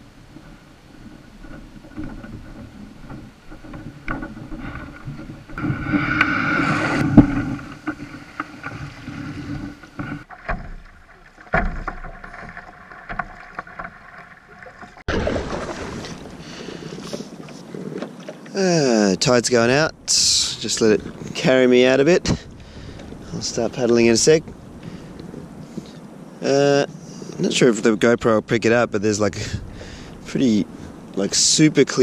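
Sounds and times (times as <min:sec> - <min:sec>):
water washing: 0:00.0 - 0:22.0
kayak gear knocking and scraping: 0:00.0 - 0:26.0.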